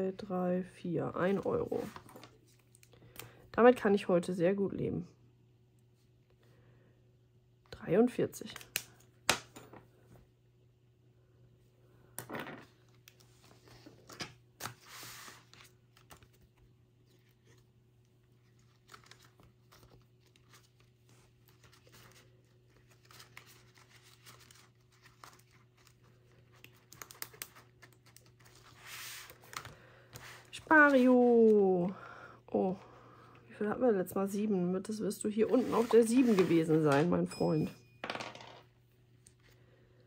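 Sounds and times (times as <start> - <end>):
paper rustling and crinkling: 13.0 - 31.6, 35.5 - 36.9.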